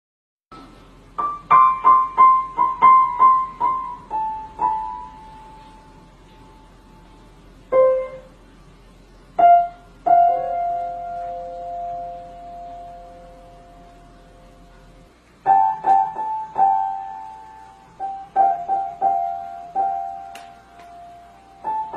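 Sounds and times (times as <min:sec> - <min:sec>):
piano notes: 0:00.5 - 0:21.9.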